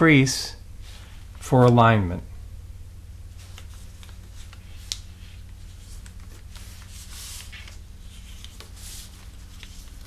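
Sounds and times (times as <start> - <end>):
steady low hum: 0.0 - 10.0
paper rustling and crinkling: 3.3 - 10.0.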